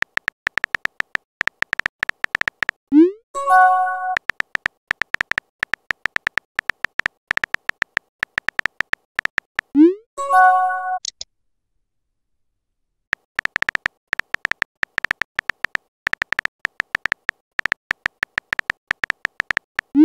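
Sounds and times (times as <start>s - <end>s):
keyboard tap clicks: 0.0s - 2.8s, 4.1s - 9.7s, 13.2s - 19.9s
synthesized message chime: 3.4s - 4.2s.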